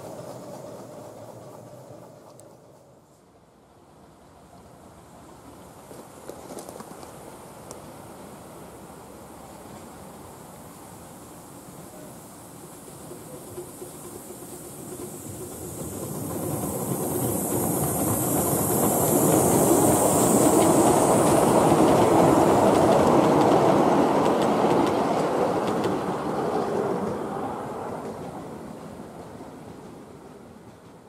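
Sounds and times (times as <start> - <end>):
steam hiss: 0.0 - 3.4, 7.0 - 30.6
miniature steam train passing: 0.0 - 31.0
wheels clicking over rail joints: 12.6 - 31.0.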